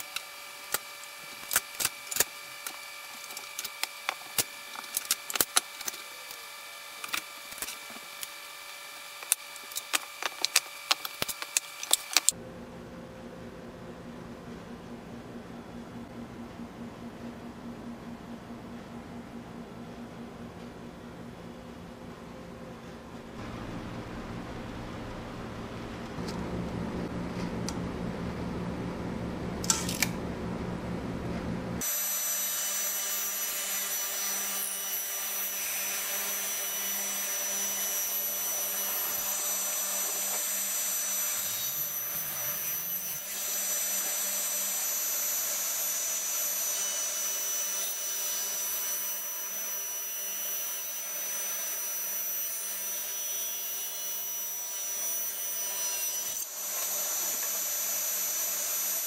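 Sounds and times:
high-speed electric motor whine: 0.0 - 12.4, 31.8 - 59.0
low humming machine: 0.0 - 47.2.

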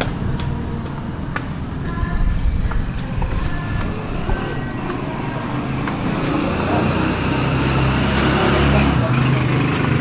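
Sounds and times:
footsteps clicking: 0.0 - 6.7
distant voices: 0.0 - 10.0
steady low rumble: 0.1 - 6.4.

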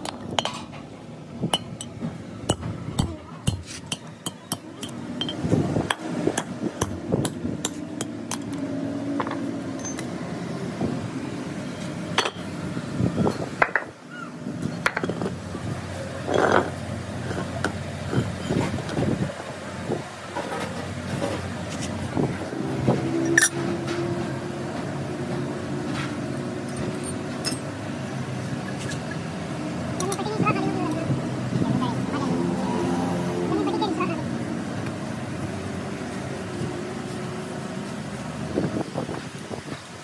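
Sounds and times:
steel guides clinking on concrete: 1.6 - 5.5, 9.2 - 10.1, 23.2 - 23.6, 26.7 - 27.8, 28.6 - 29.3.

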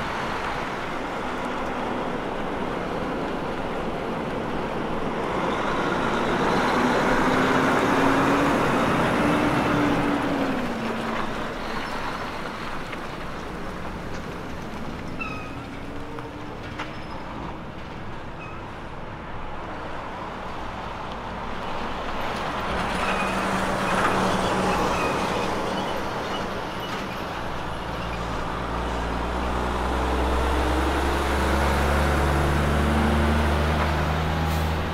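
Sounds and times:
truck diesel engine: 0.0 - 34.9
tyres on road: 0.0 - 34.9.

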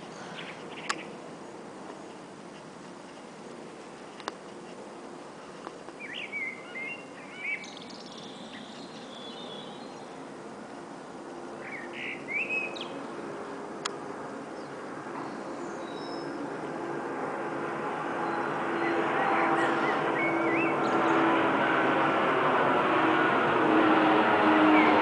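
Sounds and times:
small birds chirping: 0.0 - 10.8, 11.5 - 13.2, 14.0 - 16.8, 18.2 - 21.3
distant jet hum: 0.0 - 25.0.

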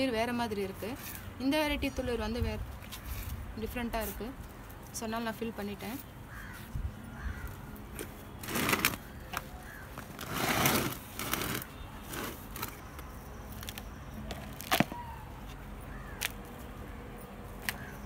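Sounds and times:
hand scooping soil from pot: 8.4 - 9.0, 10.0 - 12.8.

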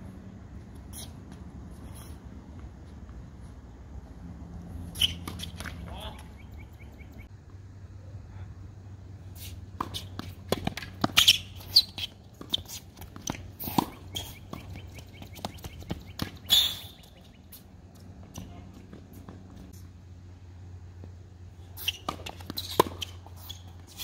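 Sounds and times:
racket striking tennis ball: 4.9 - 6.0, 9.7 - 17.0, 21.8 - 24.0
tennis ball bouncing: 4.9 - 6.4, 9.7 - 16.7, 21.8 - 24.0
shoes scuffing on court: 9.3 - 19.9.

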